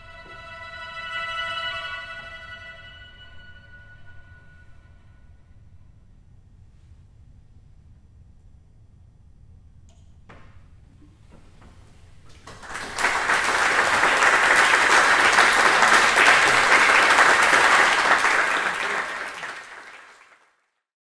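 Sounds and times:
audience applauding: 0:12.3 - 0:20.7.

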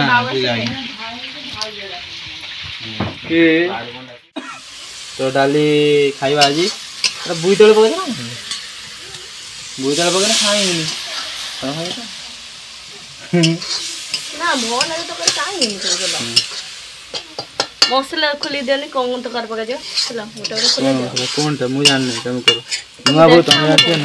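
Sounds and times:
food sizzling in a pan: 0:00.0 - 0:24.0
stirring in a pan: 0:04.6 - 0:24.0
voices talking: 0:05.3 - 0:24.0.

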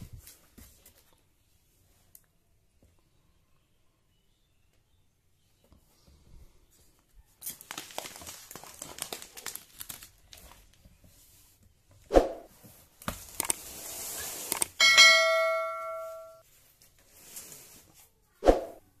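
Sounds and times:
plastic bag crinkling: 0:07.4 - 0:10.8.

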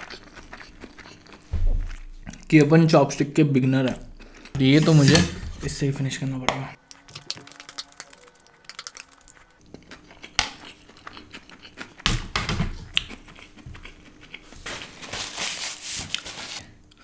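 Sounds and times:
chewing with wet mouth clicks: 0:00.0 - 0:02.5, 0:06.9 - 0:12.0, 0:12.9 - 0:14.4.

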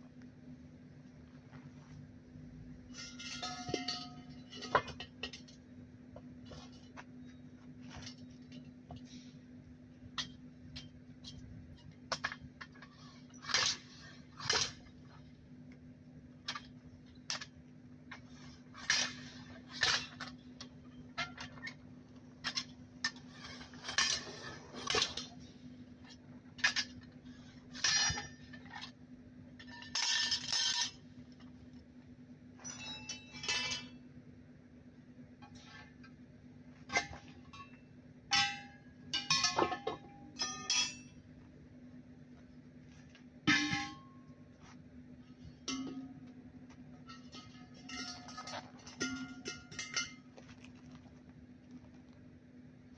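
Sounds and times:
steel bar clanking on tire rim: 0:02.9 - 0:05.6, 0:36.8 - 0:41.2, 0:43.5 - 0:44.7, 0:45.4 - 0:46.3, 0:47.0 - 0:50.8.

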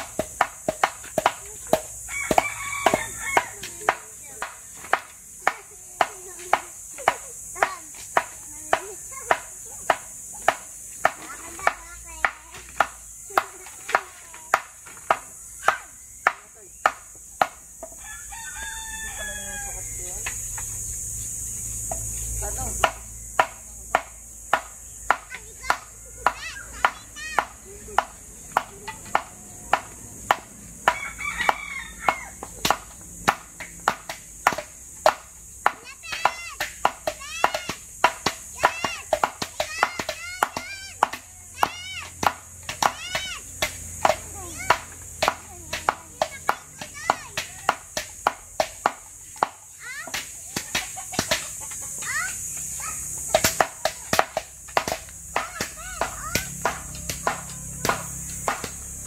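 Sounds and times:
blade chopping bamboo: 0:00.0 - 0:18.0, 0:21.9 - 0:59.0
rooster crowing: 0:02.0 - 0:03.9, 0:17.9 - 0:20.4, 0:30.8 - 0:32.6.

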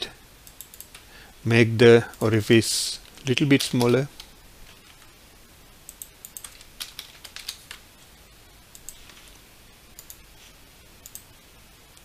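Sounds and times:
mouse clicks: 0:09.9 - 0:10.2.

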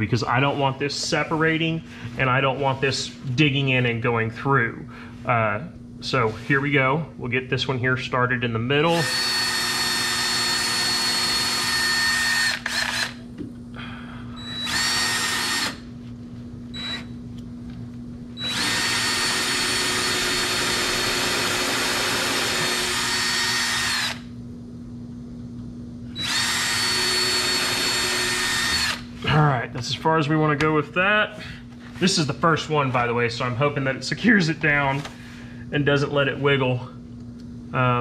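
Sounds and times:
power drill boring into wood: 0:09.0 - 0:13.2, 0:14.5 - 0:15.8, 0:16.8 - 0:17.1, 0:18.4 - 0:24.3, 0:26.2 - 0:29.1.

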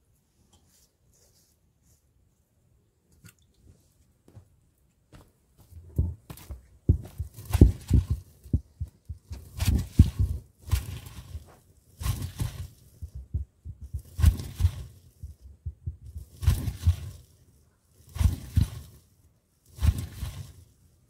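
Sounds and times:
grinding stone crushing seeds: 0:06.9 - 0:19.1.

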